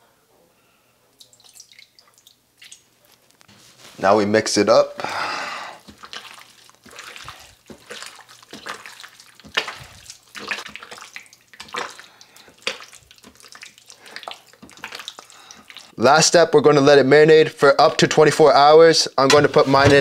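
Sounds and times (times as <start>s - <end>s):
hand squelching wet marinade: 5.8s - 16.0s.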